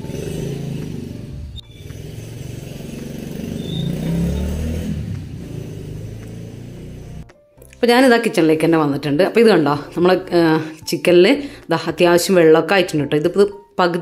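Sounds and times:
vehicle engine revving: 0.0 - 7.3.

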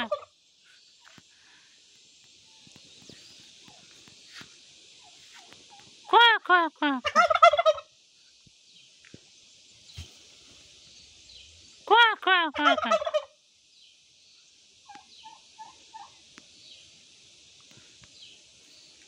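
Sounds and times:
turkey gobbling: 0.0 - 0.3, 7.0 - 7.9, 12.6 - 13.3, 14.9 - 16.2.

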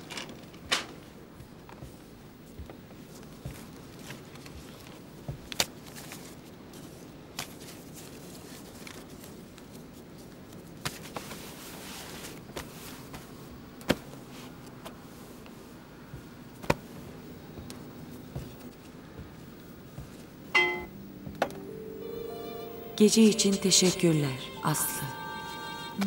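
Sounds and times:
clothing rustle: 0.0 - 20.5.

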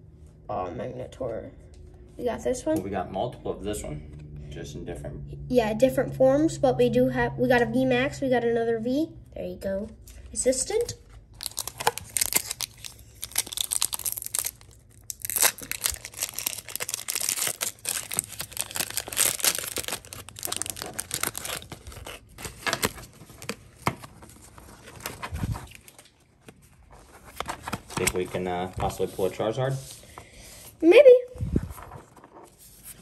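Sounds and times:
foil wrapper tearing and crinkling: 11.3 - 26.2.

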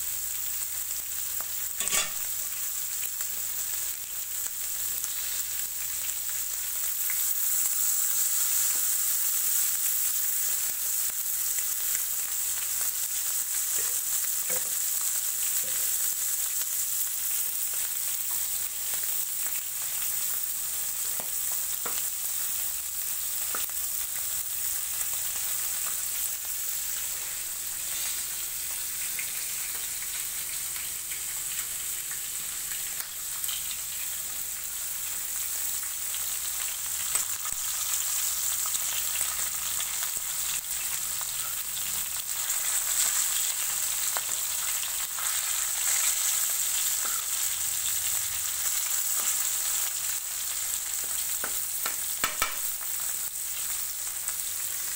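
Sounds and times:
fish sizzling in hot oil: 0.0 - 54.9
metal spatula clicks and scrapes: 1.8 - 2.2.

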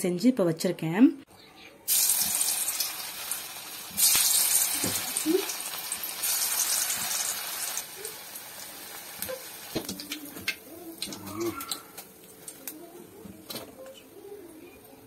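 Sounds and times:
food deep-frying in oil: 1.9 - 12.8.

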